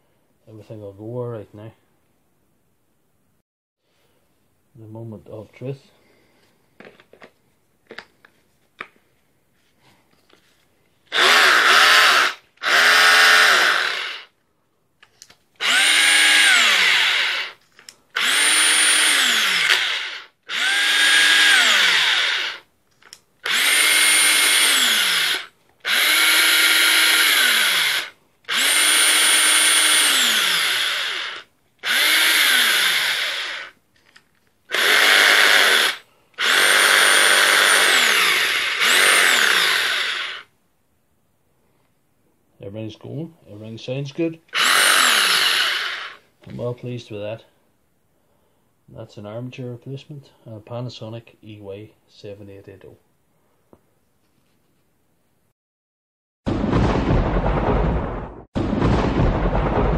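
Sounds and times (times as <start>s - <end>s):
cordless drill motor whining: 11.1s - 14.3s, 15.6s - 17.6s, 18.2s - 22.7s, 23.4s - 33.8s, 34.7s - 40.5s, 44.5s - 46.2s.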